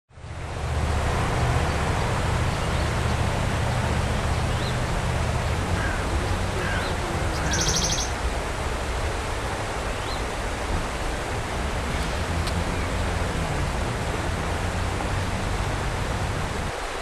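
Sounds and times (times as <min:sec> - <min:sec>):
river water rushing: 0:00.1 - 0:17.0
faint bird chirps: 0:06.7 - 0:08.1.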